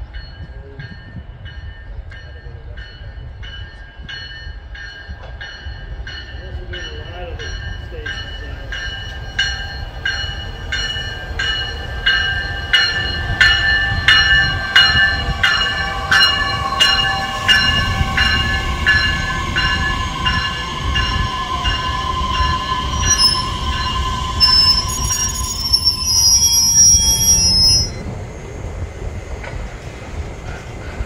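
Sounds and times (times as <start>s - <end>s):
train wheel whine: 0.0s - 31.0s
train wheels rumbling over track: 0.0s - 31.0s
warning bell ringing: 4.2s - 28.0s
high wheel squeals: 13.6s - 28.1s.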